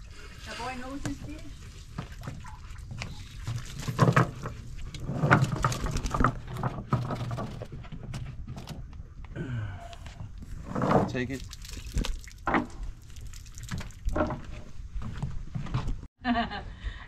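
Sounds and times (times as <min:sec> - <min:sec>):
knocks and patter of net: 0:01.2 - 0:08.2.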